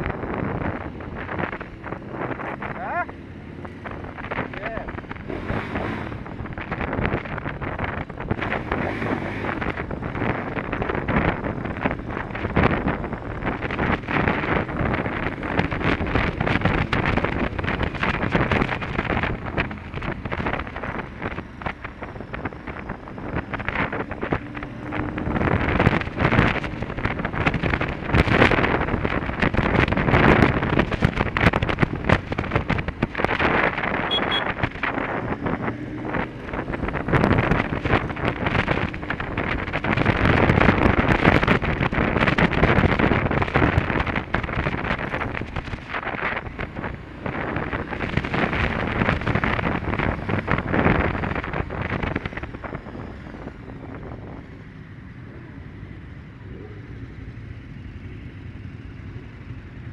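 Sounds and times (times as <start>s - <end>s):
motorcycle engine running: 0.0s - 59.9s
wind buffeting microphone: 0.0s - 59.9s.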